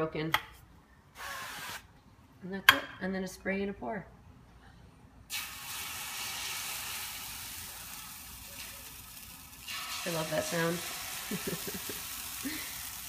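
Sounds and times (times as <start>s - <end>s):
batter sizzling on griddle: 5.3s - 13.0s.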